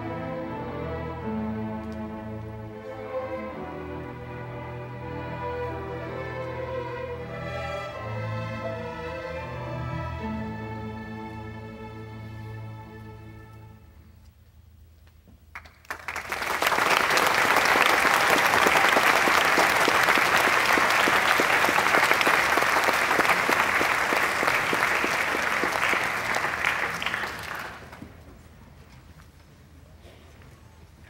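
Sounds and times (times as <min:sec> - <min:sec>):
audience applauding: 0:15.5 - 0:28.1.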